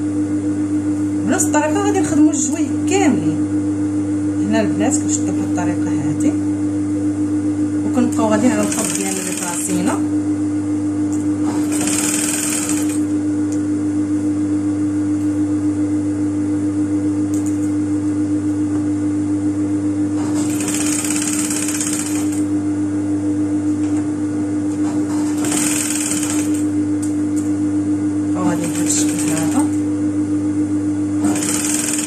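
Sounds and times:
sewing machine stitching: 8.6s - 9.8s, 11.5s - 13.0s, 20.3s - 22.4s, 25.1s - 26.6s, 28.5s - 29.8s, 31.2s - 32.0s.

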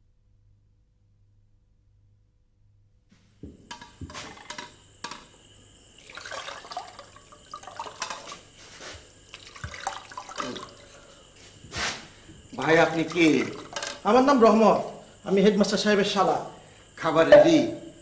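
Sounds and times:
small knocks and clicks: 3.4s - 5.3s
water pouring and splashing: 3.7s - 5.2s, 5.9s - 11.2s, 12.5s - 14.1s.

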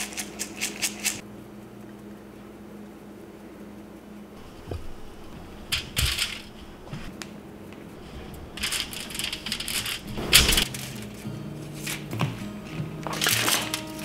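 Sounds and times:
crunchy rustling and scraping: 4.4s - 14.0s.

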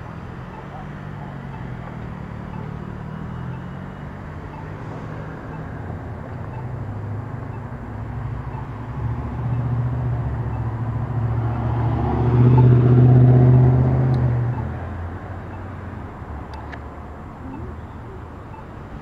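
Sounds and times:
vehicle passing by: 8.1s - 15.4s.

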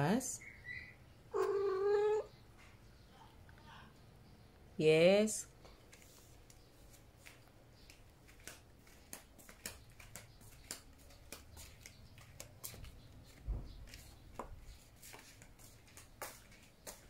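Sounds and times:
footsteps on tiled floor: 5.7s - 17.0s.

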